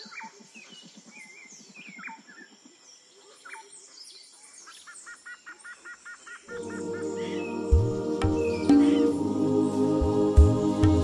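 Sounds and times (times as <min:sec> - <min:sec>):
birds chirping and whistling: 0:03.4 - 0:09.8
low pulsing animal call: 0:06.5 - 0:09.4
high insect drone: 0:06.5 - 0:11.0.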